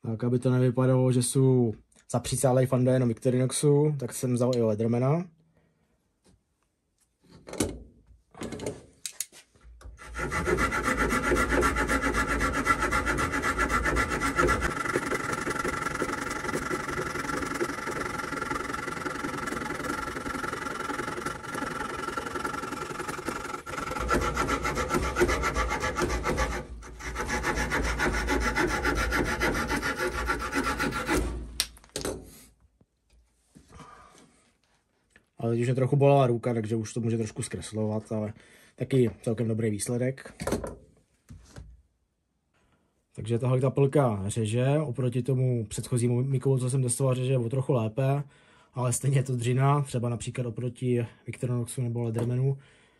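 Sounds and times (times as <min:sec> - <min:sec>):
saw blade cutting wood: 0:10.0 - 0:31.6.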